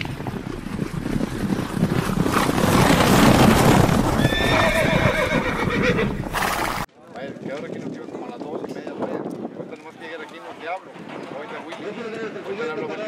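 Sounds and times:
galloping horse hoofbeats: 0.0 - 12.2
horse whinny: 2.8 - 6.7.

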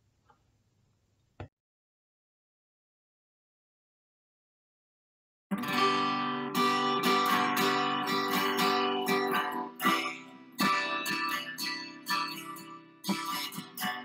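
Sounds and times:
acoustic guitar strummed chords: 5.5 - 14.0.

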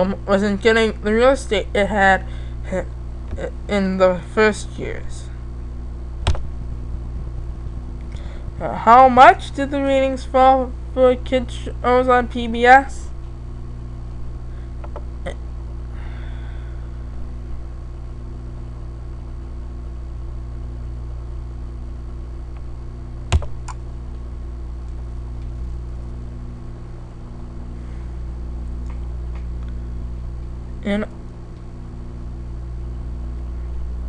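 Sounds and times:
low hum and fan noise: 0.0 - 34.0
computer mouse clicks: 23.3 - 23.8.

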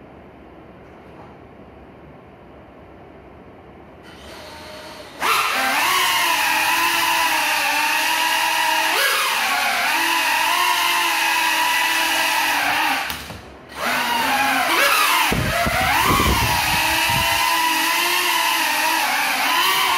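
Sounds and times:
quadcopter motors whining: 4.1 - 19.9.

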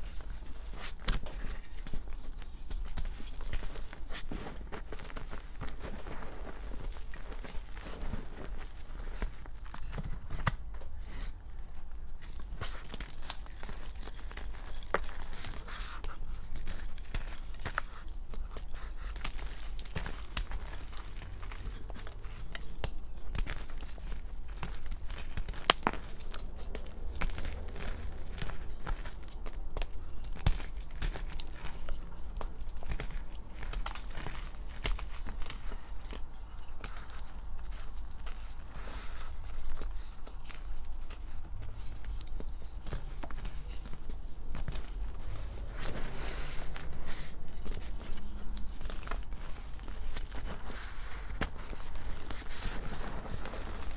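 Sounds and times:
chalk crunching and crumbling: 0.0 - 53.9.

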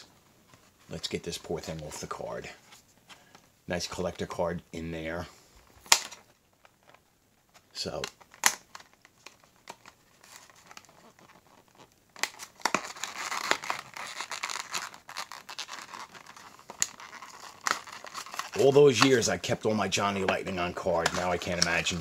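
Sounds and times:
plastic blister pack crinkling: 5.7 - 22.0.

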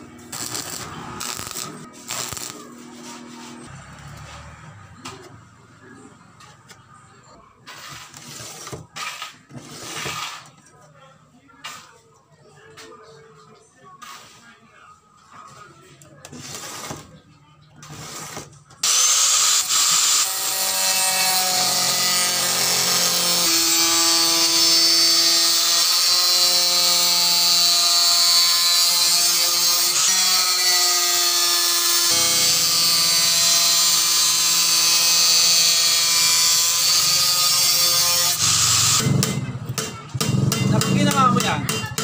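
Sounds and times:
angle grinder cutting metal sheet: 0.0 - 3.7, 17.9 - 39.4.

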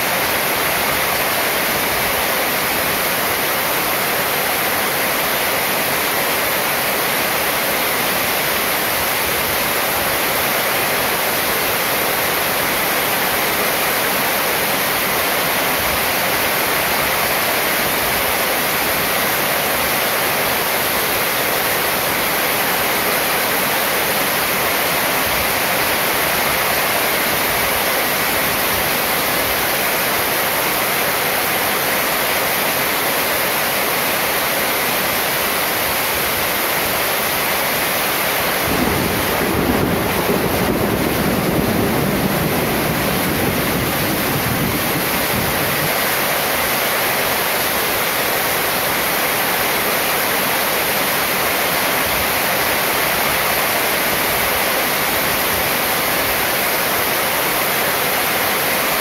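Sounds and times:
heavy rain on metal roof: 0.0 - 59.0
low rumble of thunder: 38.6 - 45.6.

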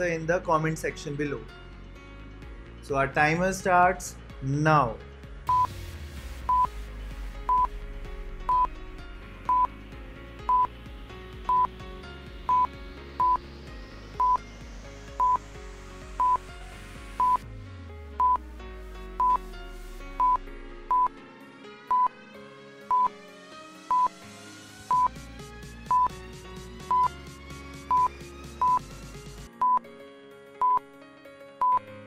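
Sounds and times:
background music: 0.0 - 32.0.

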